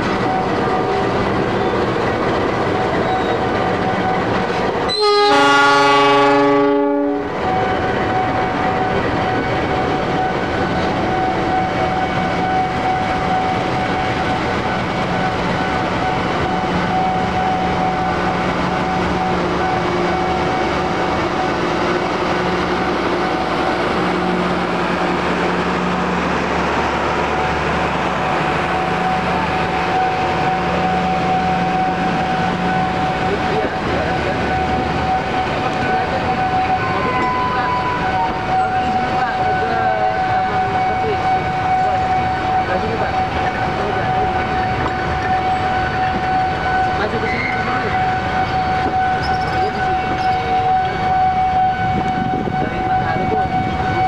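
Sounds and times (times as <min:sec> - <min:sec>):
train wheels rumbling on rails: 0:00.0 - 0:54.0
locomotive horn blast: 0:04.9 - 0:09.4, 0:28.7 - 0:54.0.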